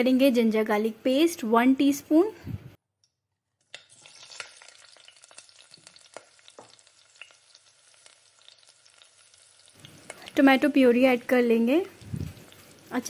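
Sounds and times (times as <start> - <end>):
onions sizzling in oil: 3.7 - 13.0.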